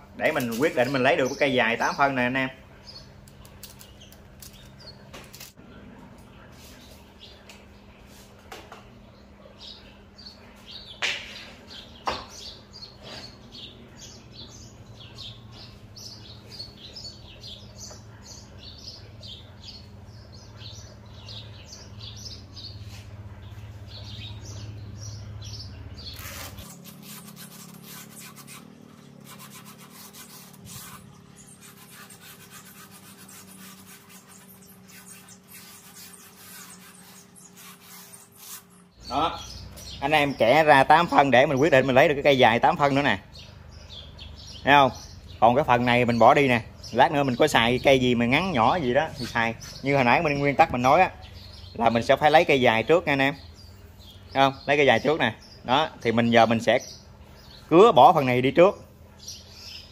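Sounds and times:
small birds chirping: 0.0 - 59.9
scratchy rubbing: 26.1 - 38.9.

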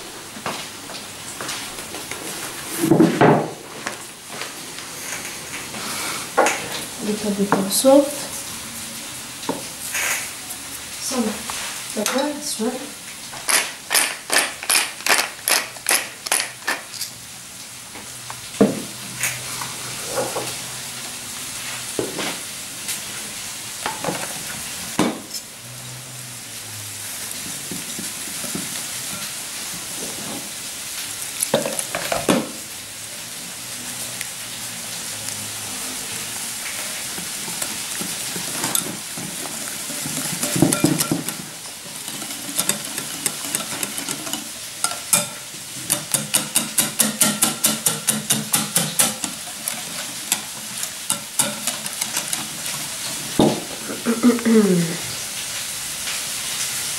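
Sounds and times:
frying sizzle: 0.0 - 56.9
pepper mill grinding: 13.5 - 17.2, 37.4 - 53.0
whisk knocking against bowl: 40.1 - 41.4, 42.1 - 49.4, 51.1 - 52.4
whisk stirring batter in glass bowl: 42.0 - 45.3, 51.1 - 52.9.

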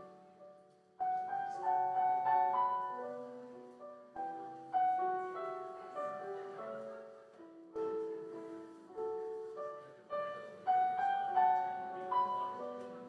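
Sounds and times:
slow solo piano: 0.0 - 13.0.

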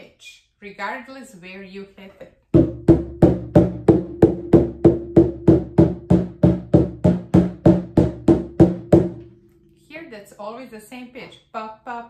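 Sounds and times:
hand drum struck with mallet: 2.6 - 9.3.

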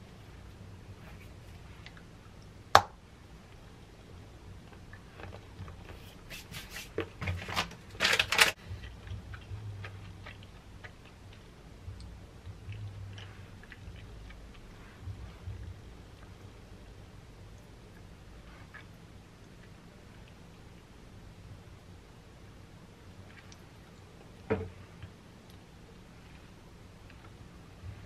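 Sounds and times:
chocolate snapping: 2.8 - 3.0
wrapper crinkling: 7.2 - 8.6.

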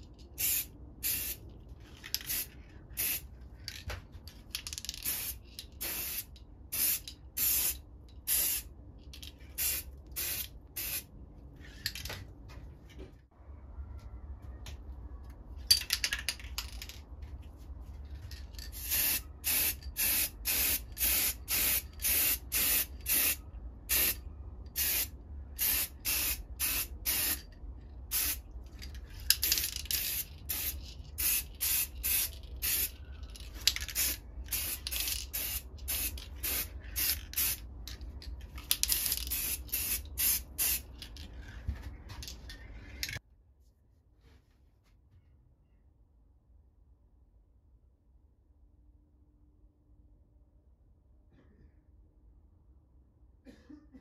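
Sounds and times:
spray can hissing bursts: 18.8 - 24.2, 24.8 - 27.4, 33.9 - 37.6.

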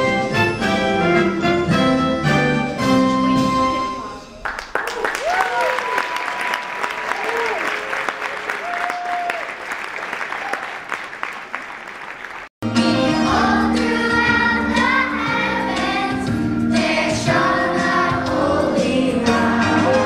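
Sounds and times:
instrumental backing music: 0.0 - 4.3, 12.6 - 20.0
audience applause: 4.4 - 12.5
children's choir singing: 12.7 - 20.0.

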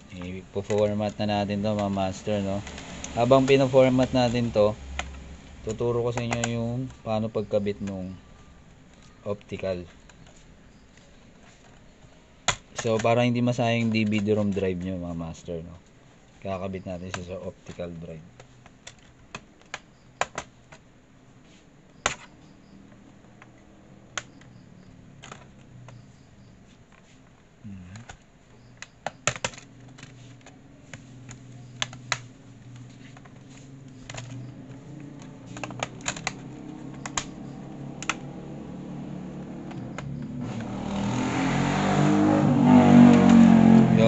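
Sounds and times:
motorcycle engine revving: 1.1 - 8.5, 31.4 - 44.0
plastic clips snapping: 12.4 - 13.2, 27.8 - 38.4.

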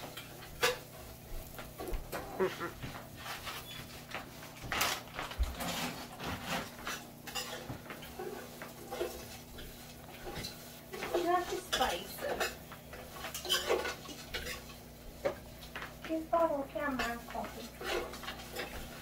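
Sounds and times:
metal spoon scraping a pot: 5.6 - 14.8, 16.9 - 18.8.

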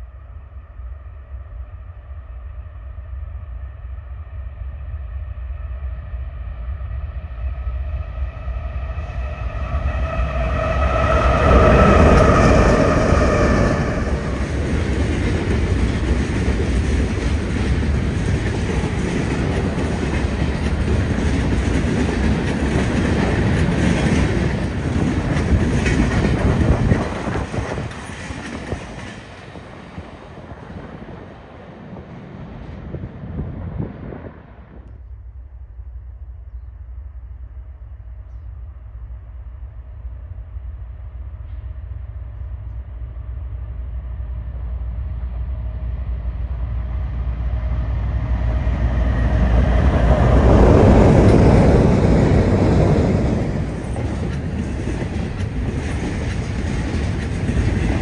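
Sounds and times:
diesel locomotive passing: 0.0 - 58.0
freight cars clickety-clack: 9.4 - 32.0, 48.2 - 58.0.

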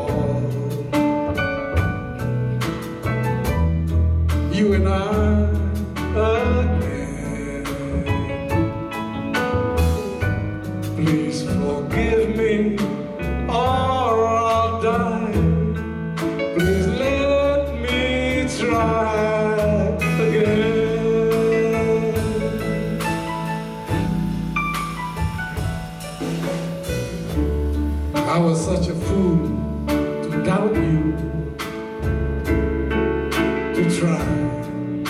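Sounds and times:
man singing: 0.0 - 2.2, 4.4 - 9.2, 10.0 - 23.0, 28.2 - 31.8, 33.5 - 35.0
drum kit: 0.0 - 35.0.

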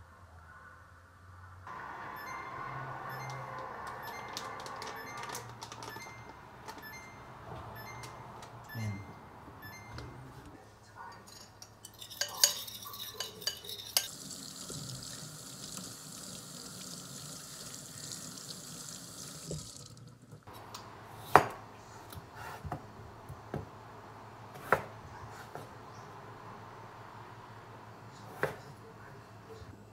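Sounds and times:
packet rustling and clicking: 3.8 - 6.1.

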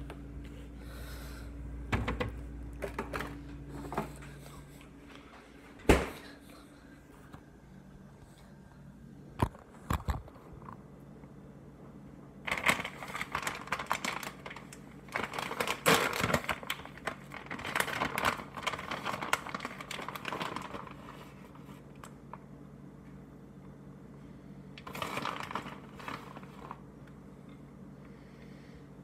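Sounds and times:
plastic bag crinkling: 12.5 - 22.4, 24.8 - 26.9.

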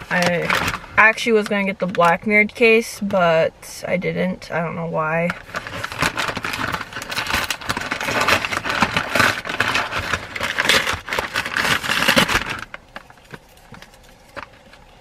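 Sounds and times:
paper packaging crinkling: 0.0 - 1.2, 5.3 - 15.0.

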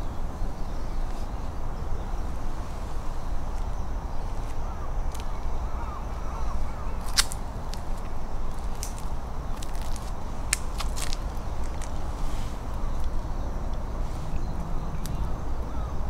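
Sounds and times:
steady low rumble: 0.0 - 16.0
boots on leaves and stone: 6.7 - 13.2.

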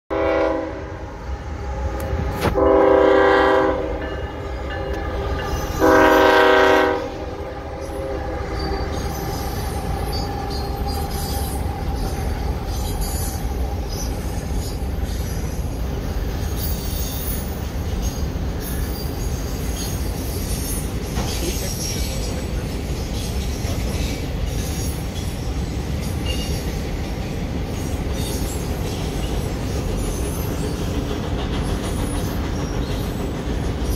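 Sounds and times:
locomotive horn blasts: 0.1 - 1.1, 1.9 - 8.9
train rumbling and clattering on bridge: 0.1 - 33.9.

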